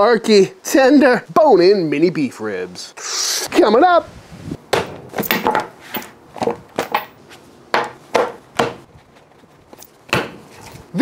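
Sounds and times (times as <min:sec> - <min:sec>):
knives clattering on wooden board: 0:05.2 - 0:07.2.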